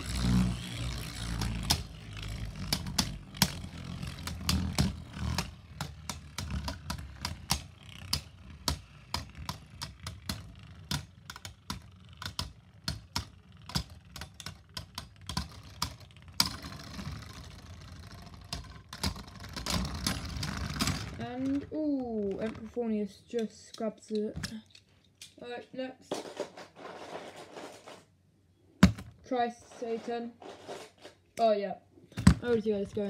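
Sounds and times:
spinning tops scraping whir: 0.0s - 21.8s.

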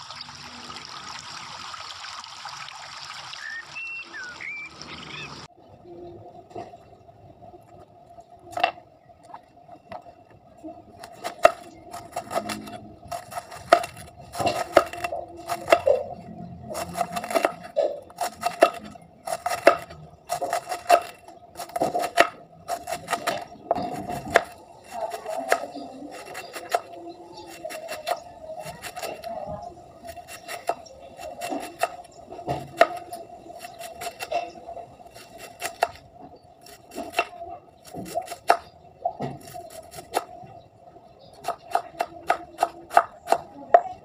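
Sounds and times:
faint steady hum: 3.6s - 37.8s
knife cutting cabbage on board: 11.0s - 16.0s, 16.8s - 29.3s, 30.0s - 34.4s, 35.1s - 36.0s.

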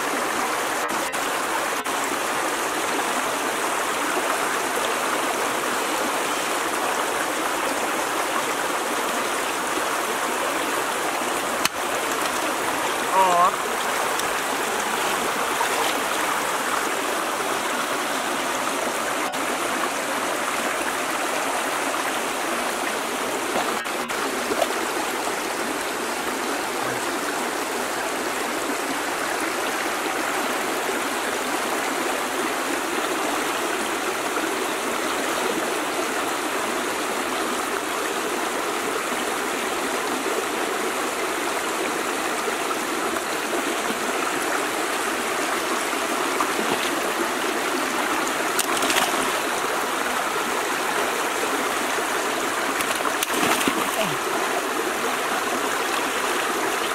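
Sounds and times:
water rushing over stones: 0.0s - 56.9s.

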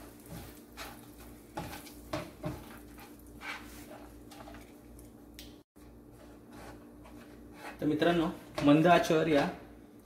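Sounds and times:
spices sizzling in butter: 0.0s - 4.6s
spatula scraping pan: 0.0s - 4.7s, 6.1s - 8.8s.

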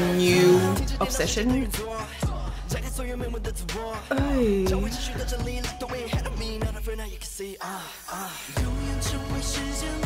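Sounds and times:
deep bass and beat: 0.0s - 7.2s
man singing: 0.0s - 10.0s.

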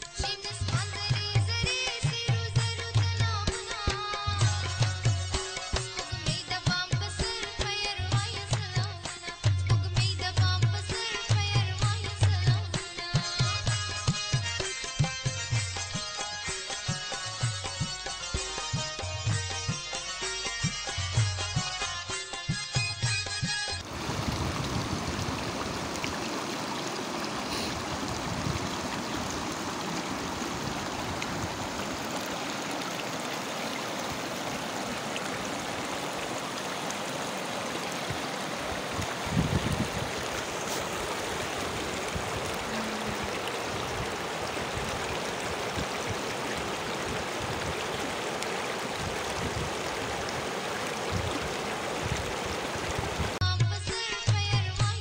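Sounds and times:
river rushing over rocks: 23.8s - 53.4s.

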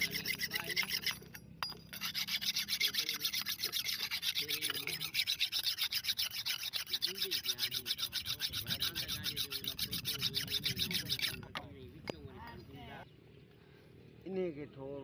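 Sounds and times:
sharpening stone rasping on blade: 0.0s - 11.6s.

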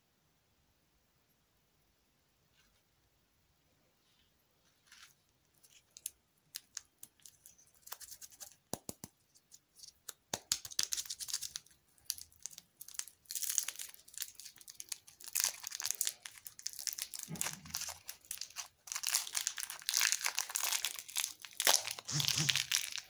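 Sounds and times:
plastic wrapper crinkling: 4.8s - 8.6s, 9.5s - 23.0s.

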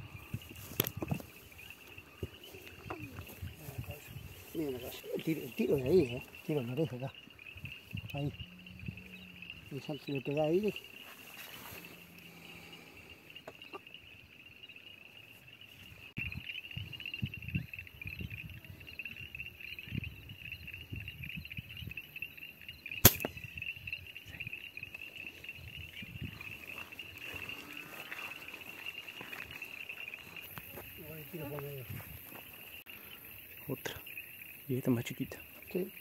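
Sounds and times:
insects chirring: 0.0s - 36.0s
air rifle shot: 23.0s - 23.4s.

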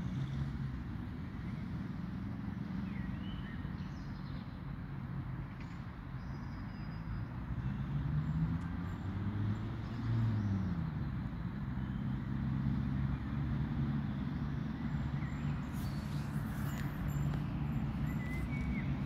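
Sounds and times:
road traffic: 0.0s - 19.0s
vehicle engine running: 12.4s - 19.0s.

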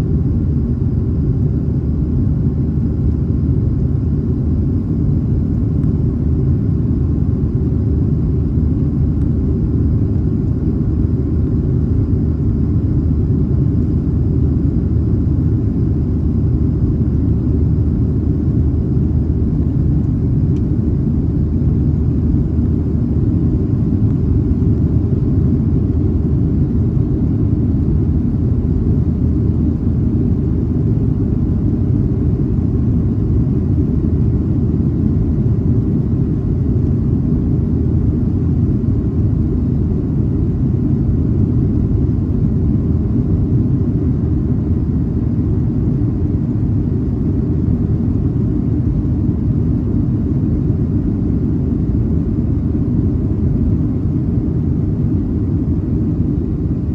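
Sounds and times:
jet airliner cabin rumble: 0.0s - 56.9s.

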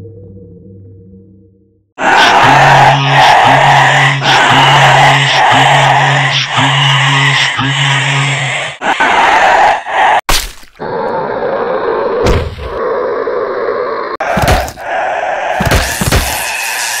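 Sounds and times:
hard whacks and thunks: 12.2s - 12.7s, 14.3s - 14.8s, 15.6s - 16.4s.

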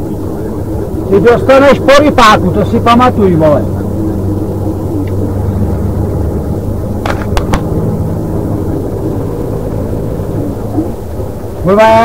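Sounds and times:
truck engine droning: 0.0s - 12.0s
sharp clicks: 7.0s - 7.7s.

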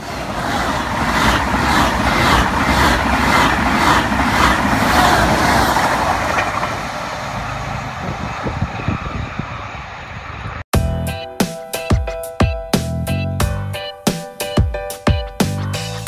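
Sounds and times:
wheel-on-rail noise: 0.0s - 10.6s
high-speed train passing: 0.0s - 10.7s.

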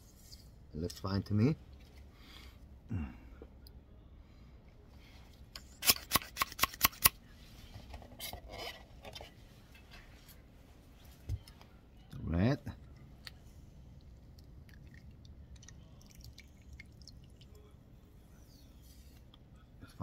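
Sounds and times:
sharp clicks or snips: 5.8s - 7.2s
faint handling noise: 7.3s - 11.8s.

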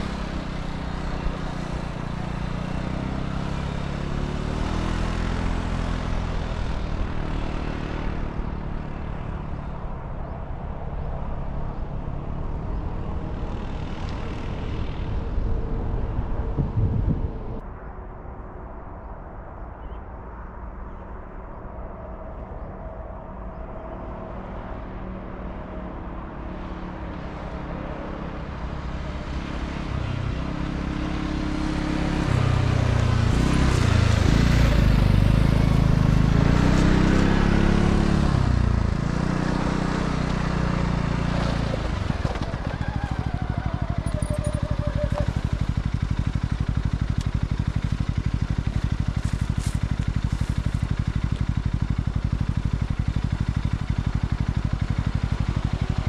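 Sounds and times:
atv engine passing and idling: 0.0s - 9.9s, 26.5s - 56.0s.

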